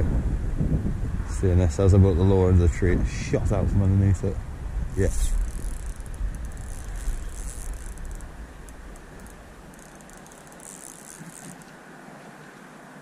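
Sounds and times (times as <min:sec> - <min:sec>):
wind on microphone: 0:00.0 - 0:10.8
fishing reel clicking: 0:05.3 - 0:11.7.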